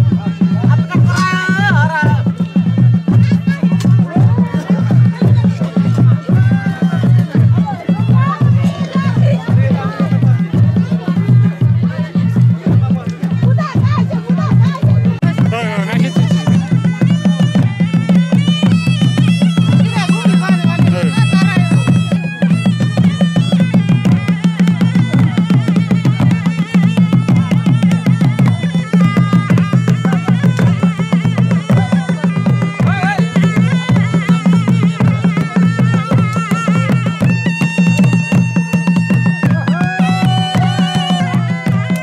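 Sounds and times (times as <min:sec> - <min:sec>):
fast drum beat: 0:00.0 - 0:42.0
high melody: 0:00.0 - 0:42.0.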